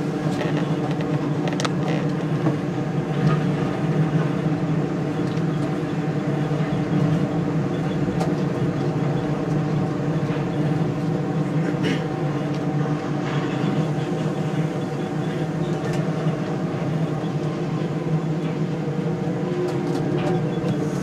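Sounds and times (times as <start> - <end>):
monorail car hum: 0.0 - 21.0.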